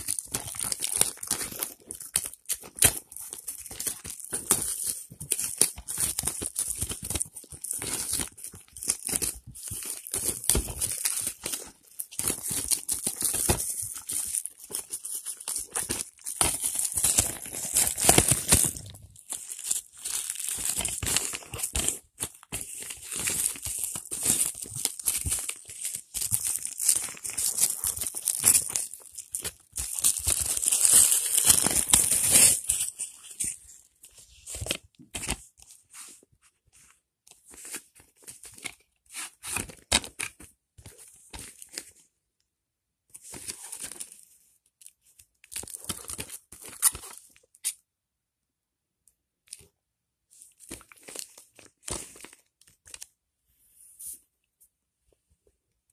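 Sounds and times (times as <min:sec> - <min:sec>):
plastic wrap crinkling and tearing: 0:00.0 - 0:35.4
plastic handling rustles: 0:00.0 - 0:42.0.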